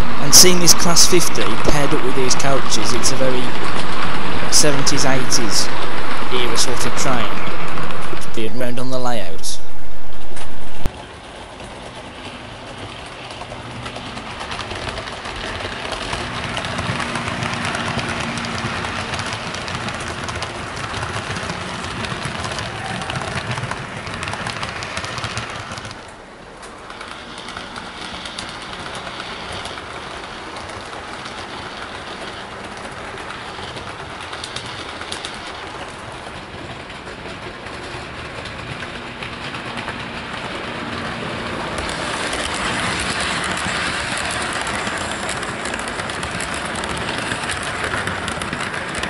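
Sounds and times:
model train motor humming: 0.0 - 8.3, 26.8 - 49.0
wheels rattling over track: 0.0 - 9.7, 10.3 - 49.0.

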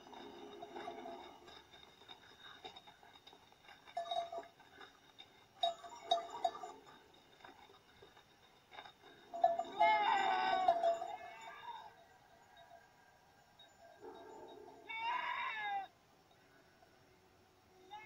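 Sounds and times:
sheep bleating: 9.7 - 11.9.

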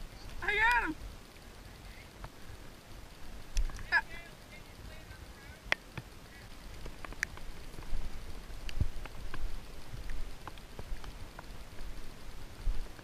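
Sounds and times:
faint rain hiss: 0.0 - 13.0
raindrops ticking: 0.0 - 13.0
dull thumps of walking in grass: 6.8 - 13.0.

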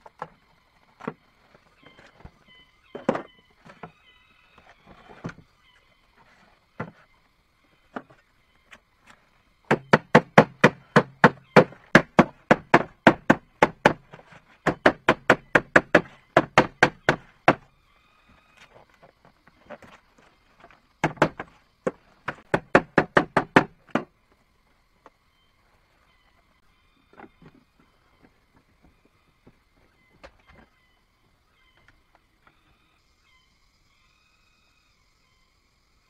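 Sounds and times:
tool knocking on wood: 9.7 - 17.6, 21.0 - 24.1.

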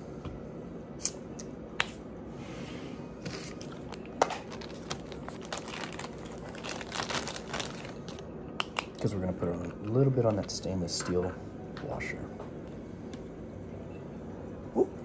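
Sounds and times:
crinkling rustle: 3.5 - 8.2.

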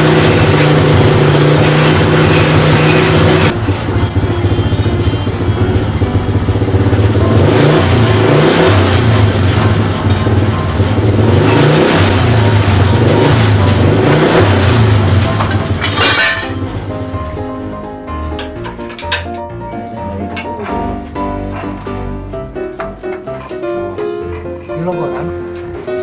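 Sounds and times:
motorcycle engine revving: 0.0 - 17.5.

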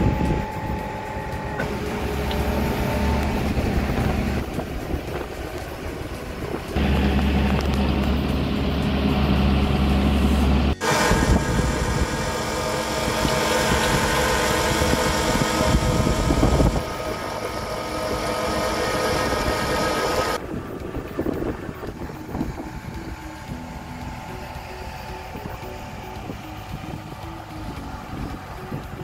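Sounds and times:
wind on microphone: 0.0 - 8.4, 10.2 - 17.7, 19.0 - 29.0
drill rig engine whine and drone: 0.0 - 29.0.

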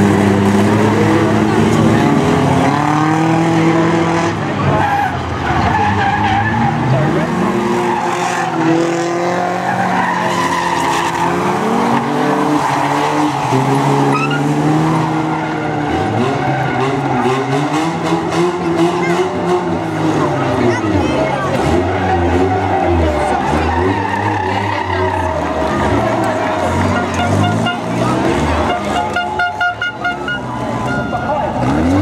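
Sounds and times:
racing car engines revving: 0.0 - 32.0.

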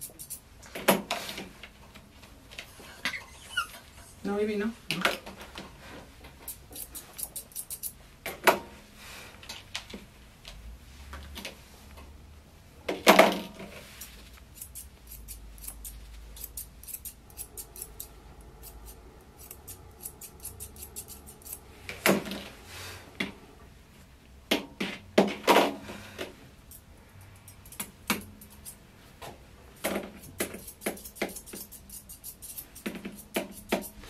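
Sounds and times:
grooming shears snipping: 14.3 - 22.3, 29.8 - 34.0.

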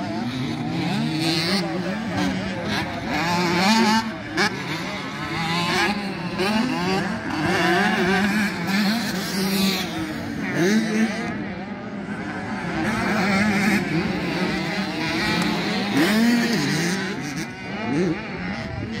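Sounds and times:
motocross bike engines racing: 0.0 - 19.0.

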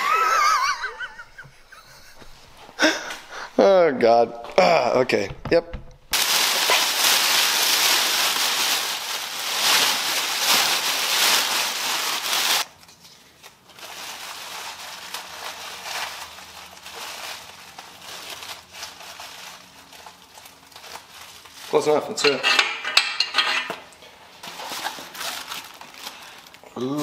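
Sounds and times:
plastic bag rustling and crinkling: 6.1 - 22.3, 24.4 - 27.0.

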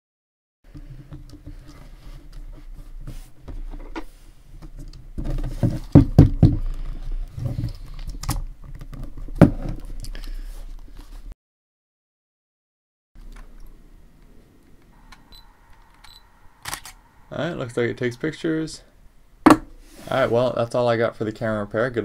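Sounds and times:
sharp camera clicks: 15.9 - 17.0.

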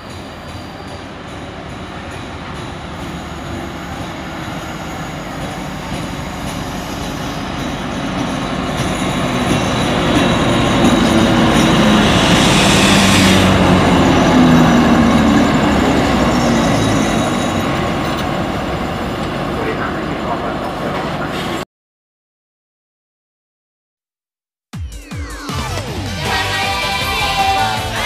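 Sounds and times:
diesel locomotive engine drone: 0.0 - 21.6
train coaches rolling by: 0.0 - 21.6, 25.3 - 28.0.

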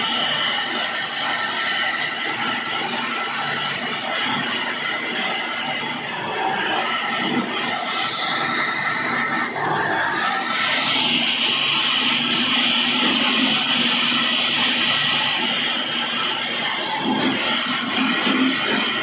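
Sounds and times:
flour mill whirring: 0.0 - 19.0.

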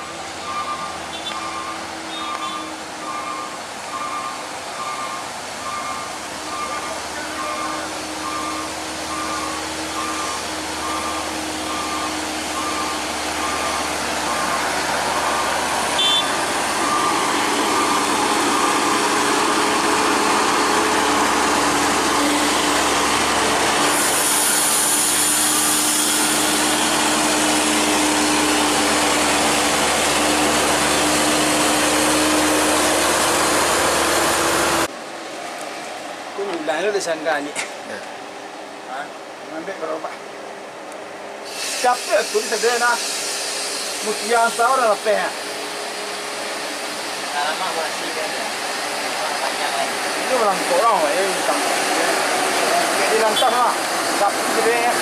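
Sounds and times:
diesel engine running loud: 0.0 - 34.9
repeating beep: 0.4 - 18.8
hiss: 23.9 - 28.4, 41.4 - 53.1.

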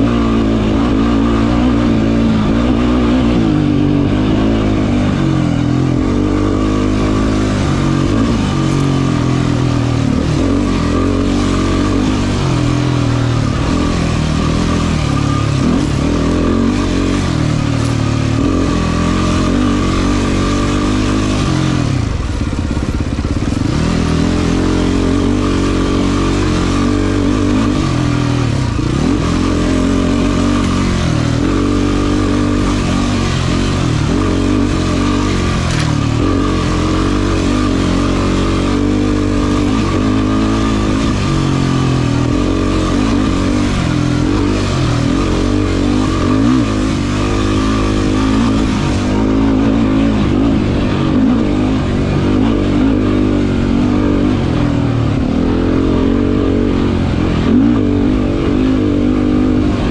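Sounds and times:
quad engine revving: 0.0 - 59.9.

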